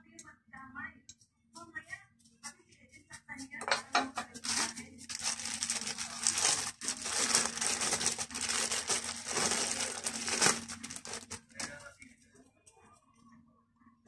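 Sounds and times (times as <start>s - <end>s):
plastic bag crinkling: 3.6s - 12.0s.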